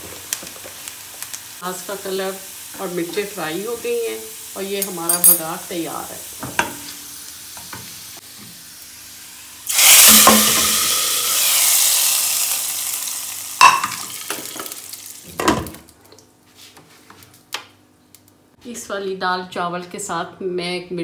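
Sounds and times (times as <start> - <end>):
hot oil sizzling in a pot: 0.0 - 15.4.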